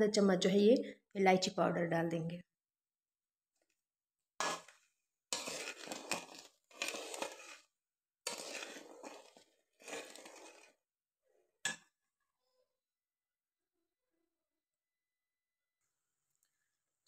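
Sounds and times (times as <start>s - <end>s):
spatula scraping steel pot: 4.4s - 10.8s.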